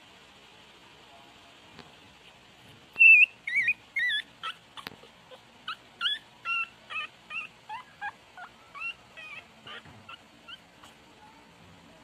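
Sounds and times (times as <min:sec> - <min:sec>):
puppy whimpering: 0:03.0 - 0:11.1.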